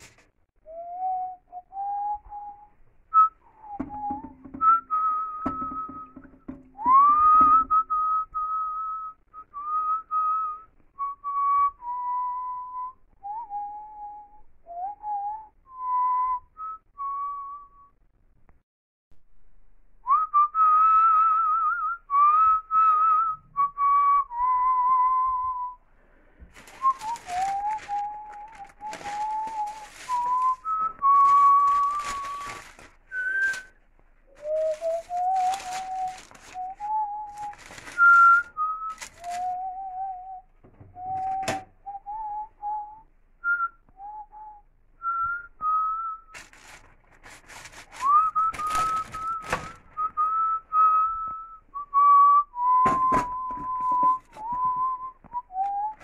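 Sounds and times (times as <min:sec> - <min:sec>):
rustling and handling noises: 0:00.0 - 0:00.4, 0:26.0 - 0:39.9, 0:46.3 - 0:51.4, 0:53.3 - 0:56.0
person whistling: 0:00.6 - 0:18.0, 0:20.0 - 0:25.8, 0:26.5 - 0:46.8, 0:47.8 - 0:56.0.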